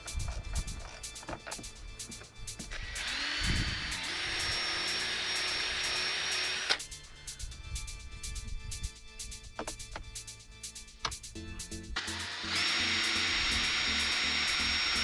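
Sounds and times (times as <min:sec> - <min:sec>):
background music with steady beat: 0:00.0 - 0:15.0
electric drill whining: 0:00.2 - 0:06.9, 0:12.0 - 0:15.0.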